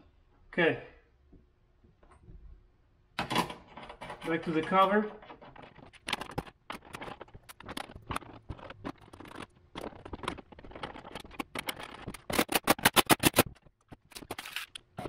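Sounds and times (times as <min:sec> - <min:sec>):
plastic cover knocks and scrapes: 0:05.3 - 0:12.9
rapid sharp clicks: 0:05.8 - 0:14.9.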